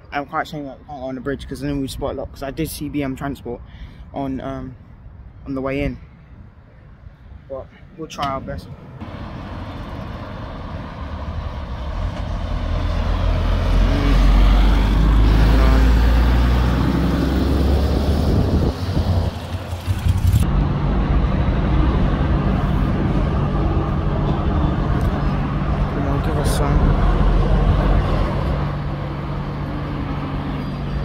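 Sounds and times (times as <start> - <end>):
heavy vehicle engine rumble: 8.2 - 31.0
low engine hum: 8.7 - 31.0.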